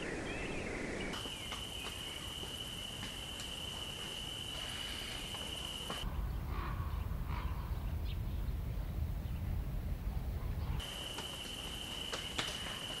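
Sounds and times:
high-pitched insect trill: 0:01.2 - 0:06.0.

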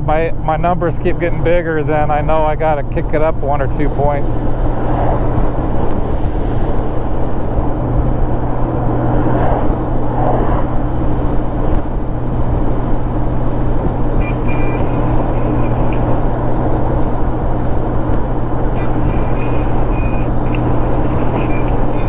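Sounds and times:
motorcycle engine hum: 0:00.0 - 0:22.0
wind and road noise: 0:00.0 - 0:22.0.

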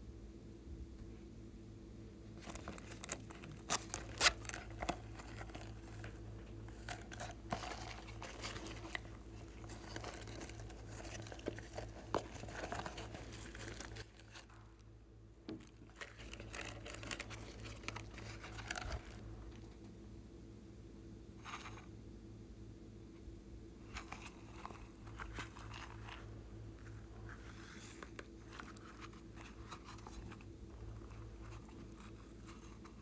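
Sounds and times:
low electrical hum: 0:00.0 - 0:33.0
pouch crinkling and crackling: 0:02.4 - 0:14.8, 0:15.5 - 0:19.2.

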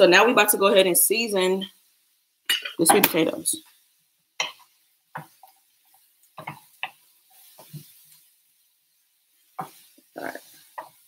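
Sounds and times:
spatula stirring sweet potatoes: 0:02.8 - 0:11.0
spatula knocking and scraping pan: 0:04.4 - 0:08.0, 0:09.6 - 0:09.9.

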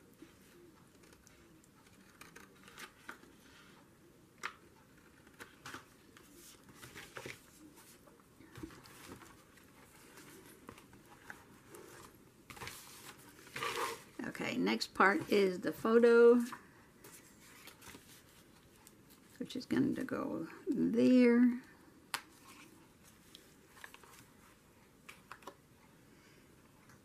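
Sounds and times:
paper rustling: 0:05.0 - 0:14.2, 0:16.4 - 0:19.4, 0:22.3 - 0:25.5.

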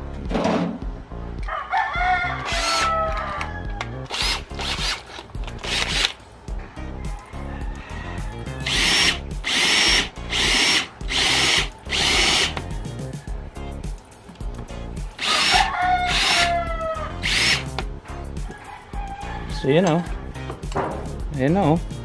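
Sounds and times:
electric drill drilling metal: 0:02.5 - 0:02.9, 0:04.1 - 0:06.1, 0:08.6 - 0:12.6, 0:15.2 - 0:16.6, 0:17.2 - 0:17.7.

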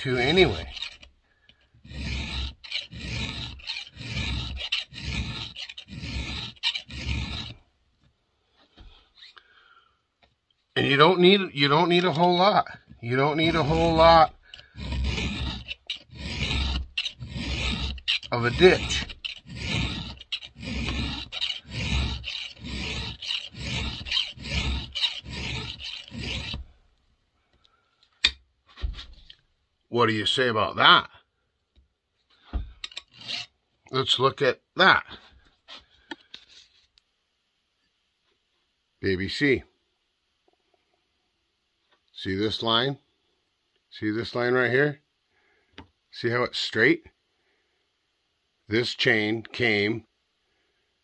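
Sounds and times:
file rasping on chainsaw chain: 0:00.0 - 0:01.1, 0:01.8 - 0:07.6, 0:11.7 - 0:26.7, 0:32.8 - 0:33.5.

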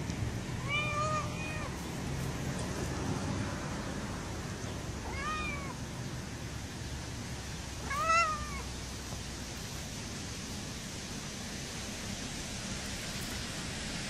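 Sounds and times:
steady background hiss: 0:00.0 - 0:14.0
kitten meowing: 0:00.6 - 0:01.8, 0:05.0 - 0:05.8, 0:07.8 - 0:08.6.

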